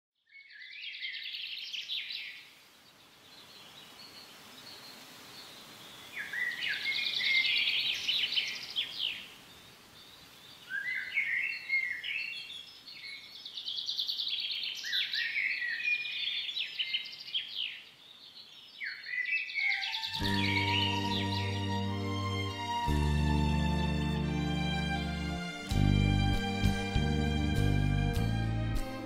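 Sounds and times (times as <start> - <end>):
songbird twittering trills: 0.3 - 22.0.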